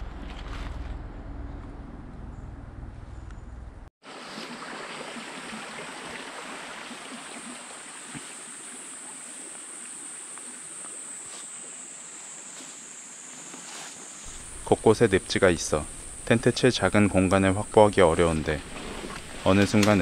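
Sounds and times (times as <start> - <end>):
stream water rushing: 4.0 - 12.2, 14.3 - 20.0
insects droning: 5.0 - 20.0.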